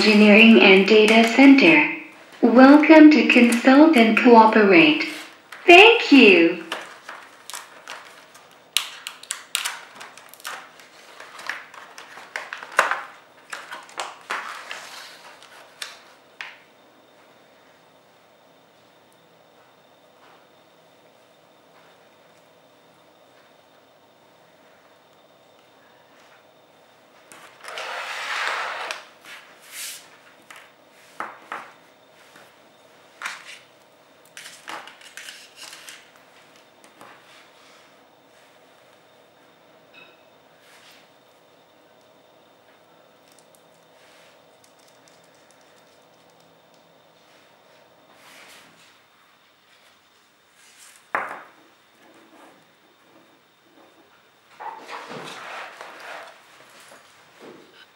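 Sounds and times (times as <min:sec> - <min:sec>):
thin plastic trays crinkling: 0:06.7 - 0:16.0.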